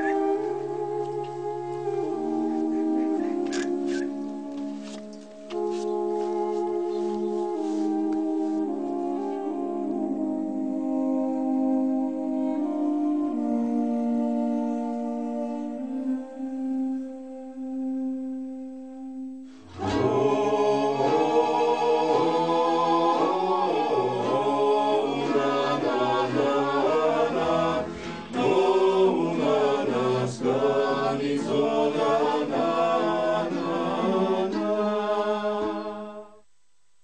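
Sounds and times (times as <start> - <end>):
unaccompanied choir singing: 19.7 - 36.4.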